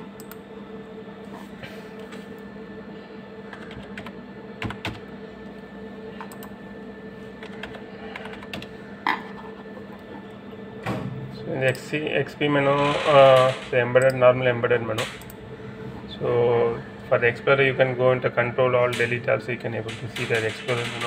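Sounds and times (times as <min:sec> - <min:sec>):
steady low hum: 0:00.0 - 0:21.0
computer keys clicking: 0:00.2 - 0:00.4, 0:03.5 - 0:05.0, 0:06.2 - 0:06.5, 0:07.4 - 0:08.7, 0:15.0 - 0:15.4, 0:19.9 - 0:21.0.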